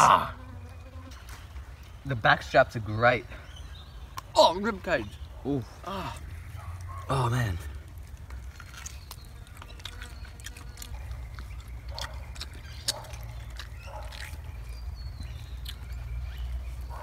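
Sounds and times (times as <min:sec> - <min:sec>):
mouth smacks and clicks chewing: 0:08.0 - 0:16.4.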